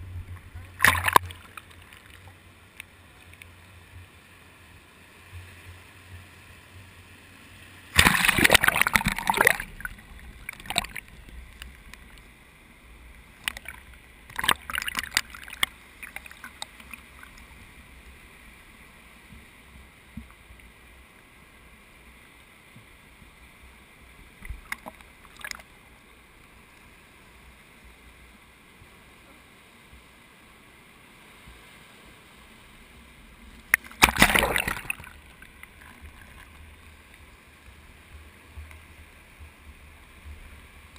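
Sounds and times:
water splashing over camera case: 0.8s - 2.2s, 8.0s - 11.1s, 13.4s - 17.0s, 33.8s - 36.5s.

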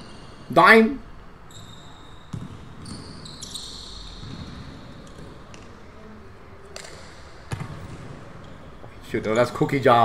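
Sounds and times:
sneakers squeaking on floor: 0.0s - 0.6s, 1.3s - 5.8s, 6.8s - 9.8s
basketball bouncing on court: 2.1s - 5.7s, 7.5s - 8.7s.

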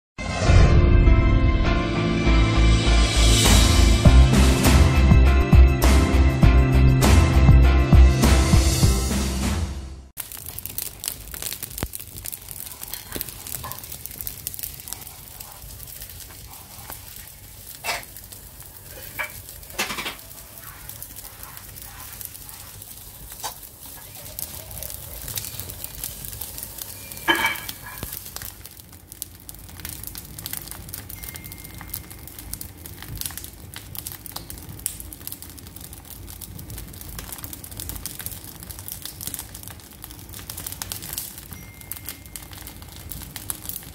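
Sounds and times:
fire crackling and sizzling: 2.4s - 43.9s
loud pops from fire: 10.2s - 43.9s.

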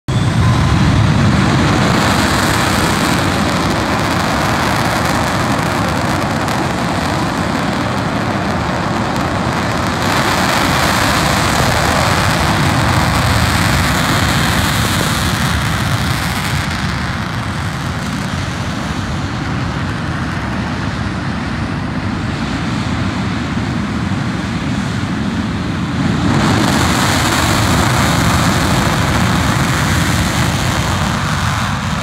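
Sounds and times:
jet engine roar: 0.0s - 32.0s.

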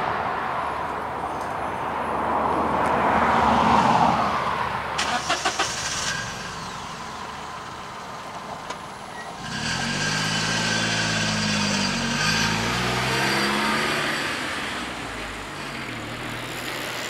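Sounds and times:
moped approaching: 5.0s - 17.0s
car engine accelerating past: 9.4s - 17.0s.

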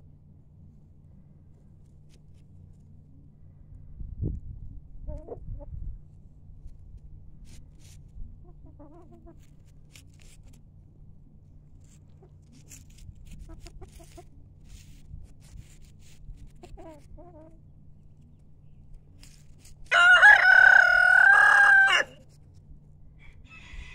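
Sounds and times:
chickens clucking: 5.0s - 5.9s, 7.5s - 10.6s, 11.8s - 23.8s.

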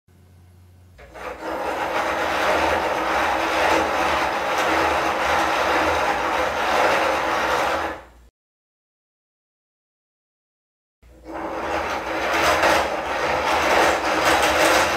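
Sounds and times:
plastic gears whirring rattle: 1.0s - 8.0s, 11.4s - 14.9s.

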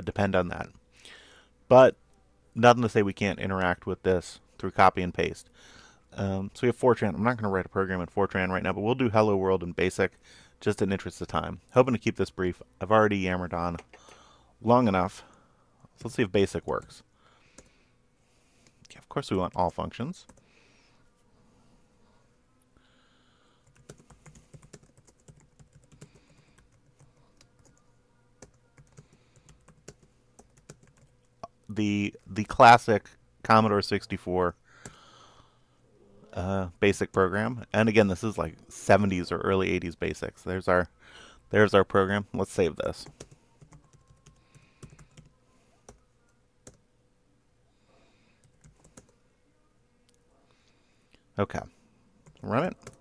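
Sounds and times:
faint keyboard typing: 13.7s - 14.3s, 15.2s - 17.8s, 18.6s - 20.5s, 23.6s - 31.5s, 42.8s - 46.9s, 48.3s - 49.2s, 52.2s - 53.0s
computer keyboard keystrokes: 23.6s - 27.8s, 28.4s - 31.1s, 43.1s - 45.3s.

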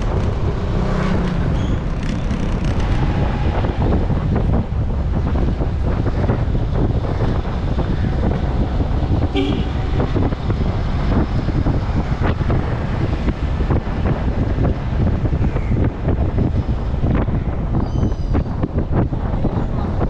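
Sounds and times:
road noise: 0.0s - 20.0s
wind buffeting microphone: 0.0s - 20.0s
horn beep: 9.3s - 10.1s.

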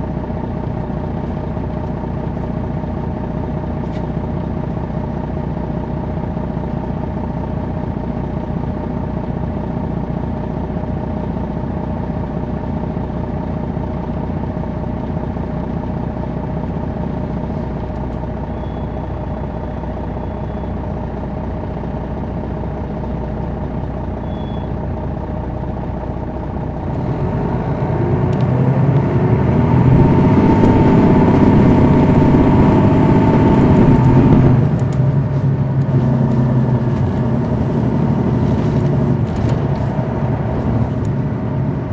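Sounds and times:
bus diesel engine running: 0.0s - 41.9s
high whine: 29.2s - 34.8s.

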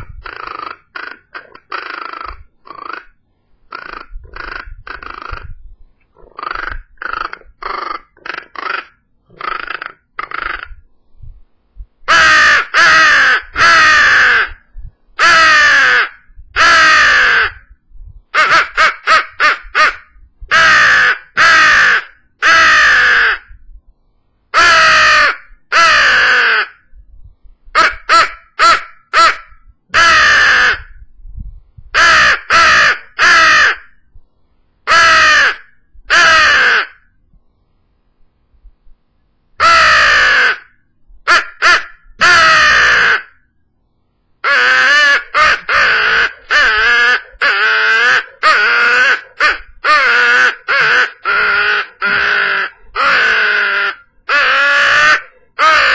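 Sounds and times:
crow call caws: 0.0s - 5.5s, 6.2s - 10.8s, 12.1s - 14.6s, 15.2s - 17.7s, 18.4s - 23.5s, 24.6s - 26.8s, 27.8s - 31.0s, 34.9s - 37.1s, 39.6s - 43.4s, 44.4s - 55.9s.

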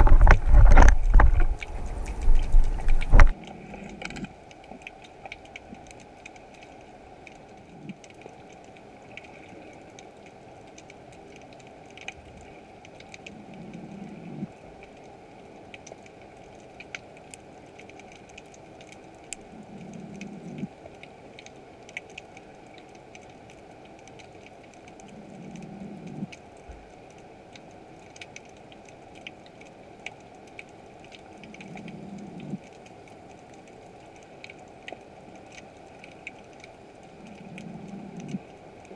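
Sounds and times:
low hum: 0.0s - 4.3s.

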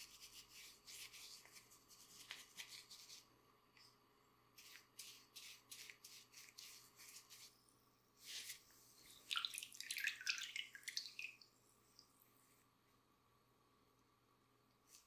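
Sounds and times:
wet rubbing strokes: 0.0s - 3.3s, 4.6s - 7.6s, 8.2s - 11.4s.

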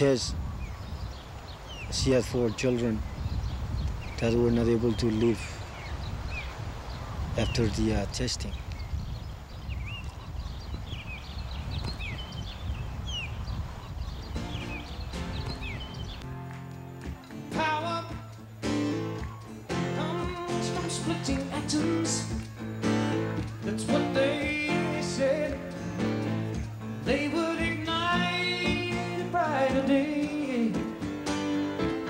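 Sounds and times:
guitar: 14.3s - 32.0s
person singing: 17.5s - 18.9s, 19.7s - 22.5s, 23.5s - 26.2s, 27.0s - 31.1s.

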